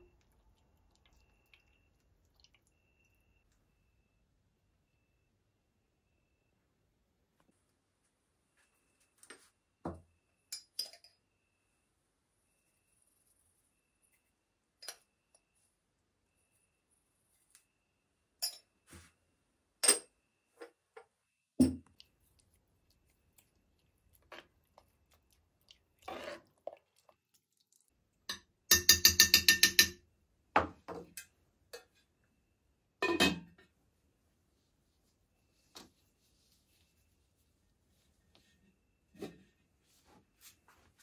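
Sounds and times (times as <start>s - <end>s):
dishes and cutlery clinking: 18.4s - 18.7s, 28.3s - 30.0s.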